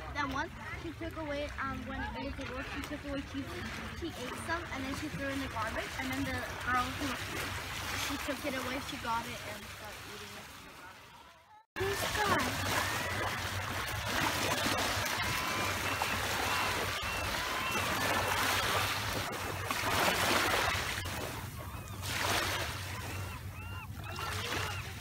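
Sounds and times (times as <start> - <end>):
waves lapping on pebbles: 0.8 - 11.2, 11.8 - 23.2
bird honking calls: 14.7 - 19.7, 20.4 - 25.0.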